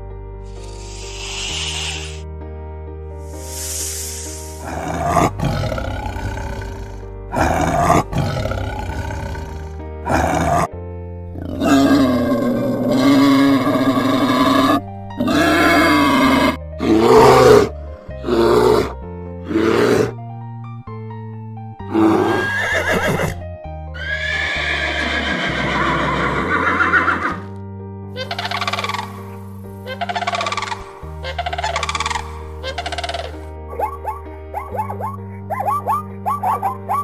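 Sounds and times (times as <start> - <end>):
background music: 0.0 - 37.0
bear calls: 0.5 - 2.2, 28.2 - 37.0
boar grunts and squeals: 0.5 - 2.2, 4.1 - 10.7, 11.4 - 20.1, 28.2 - 37.0
snake hissing: 0.5 - 2.2, 3.2 - 7.0, 28.3 - 33.4.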